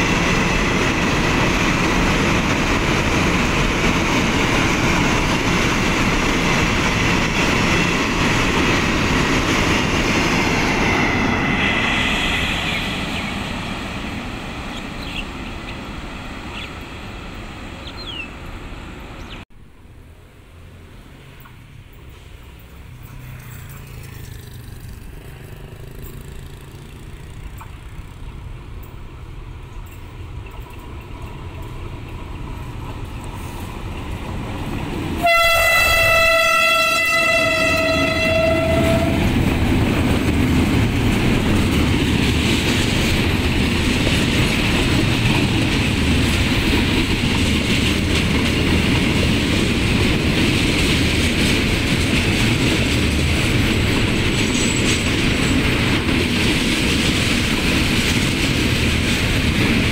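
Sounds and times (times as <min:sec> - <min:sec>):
freight train rumble and clatter: 0:00.0 - 0:20.1, 0:21.0 - 0:59.9
diesel locomotive rumble: 0:00.0 - 0:59.9
locomotive horn: 0:35.2 - 0:39.4.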